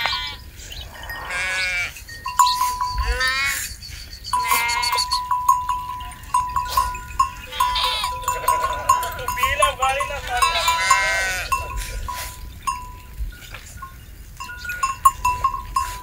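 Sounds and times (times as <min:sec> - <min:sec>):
sheep bleating: 0:00.0 - 0:02.0, 0:02.6 - 0:03.8, 0:04.4 - 0:12.4
metallic clinks: 0:02.0 - 0:03.5, 0:04.3 - 0:16.0
high ringing tone: 0:02.0 - 0:03.6, 0:04.3 - 0:13.2.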